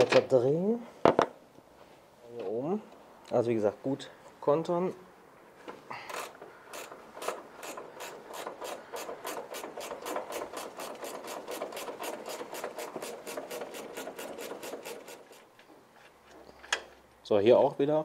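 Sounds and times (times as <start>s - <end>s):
ratchet wrench clicking: 6.1s - 15.4s.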